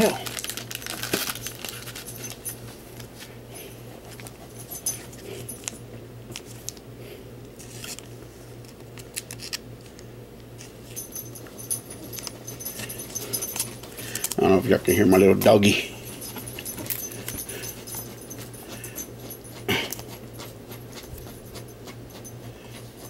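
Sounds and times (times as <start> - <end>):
trading cards rustling: 0.0 - 3.4, 11.4 - 18.3.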